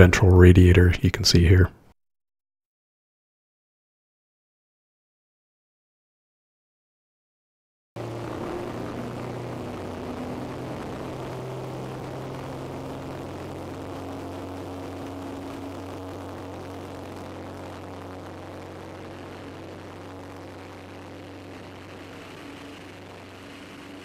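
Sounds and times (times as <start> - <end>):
propeller aircraft engine drone: 8.0 - 24.0
rush of air: 8.0 - 24.0.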